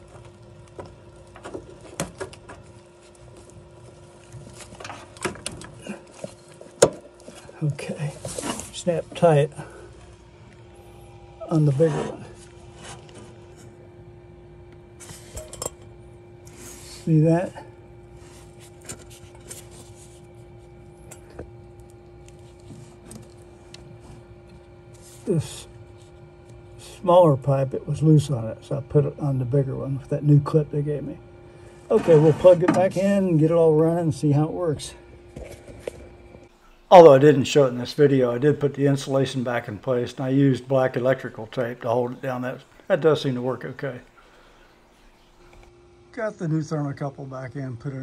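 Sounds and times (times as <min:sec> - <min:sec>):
faint hum: 0:00.0 - 0:48.0.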